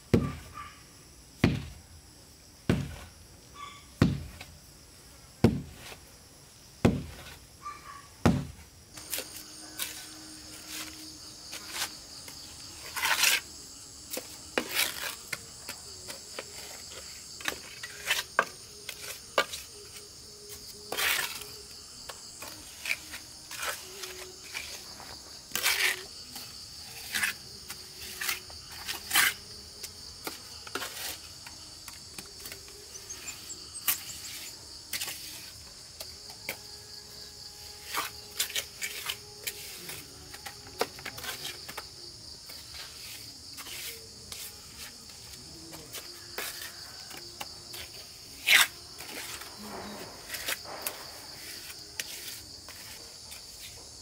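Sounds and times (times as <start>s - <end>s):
knocks and scrapes: 6.8s - 7.4s, 14.1s - 19.7s, 22.1s - 36.6s, 42.5s - 54.0s
high-pitched insect chirring: 9.0s - 45.3s.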